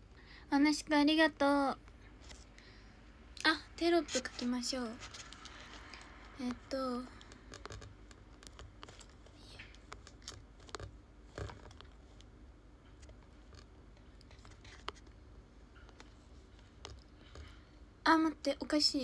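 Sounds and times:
low steady hum: 0.0 - 19.0
fingertips tapping touchscreen: 5.2 - 12.3, 12.9 - 15.2.

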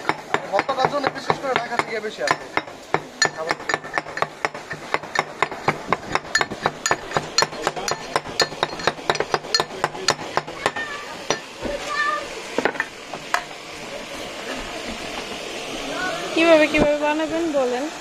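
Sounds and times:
pestle pounding in mortar: 0.0 - 11.8.

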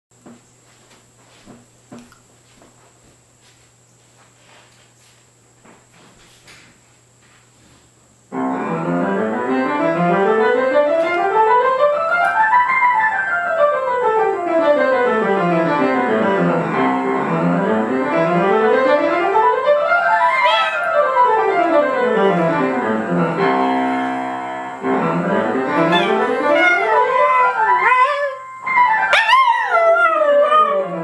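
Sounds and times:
piano runs: 8.3 - 31.0.

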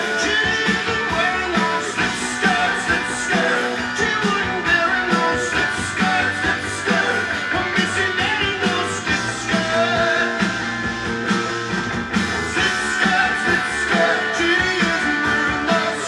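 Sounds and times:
rock song over loudspeakers: 0.0 - 16.0.

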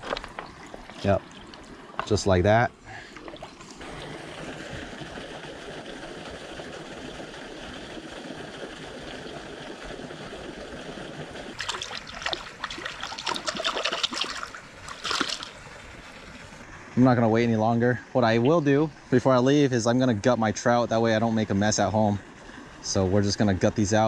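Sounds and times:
river water trickling over rocks: 0.0 - 16.6
splashes and knocks in shallows: 11.5 - 15.7.

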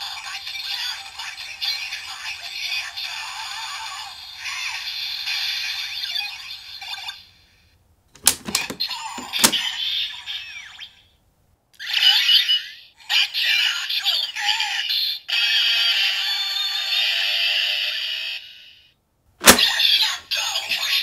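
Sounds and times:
toy announcer voice: 0.0 - 7.1, 8.6 - 11.0, 11.8 - 18.5, 19.5 - 21.0
plastic lever clicks: 8.2 - 9.6, 19.4 - 19.7
toy sound effect: 11.8 - 12.9.

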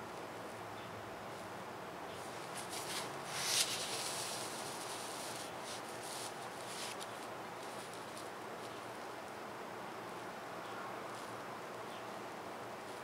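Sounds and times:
steady hiss: 0.0 - 13.0
rubbing on thin paper: 2.2 - 8.3.

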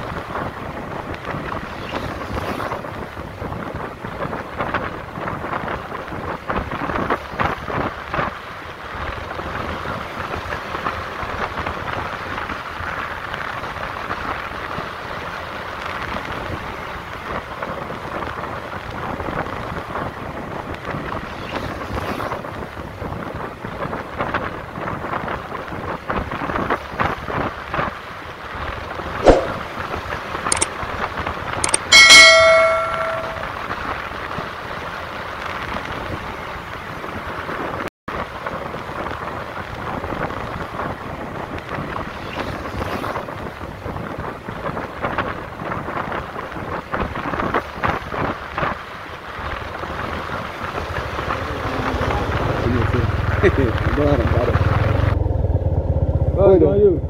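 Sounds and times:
road noise: 0.0 - 57.0
bell-like chime: 31.7 - 33.5.

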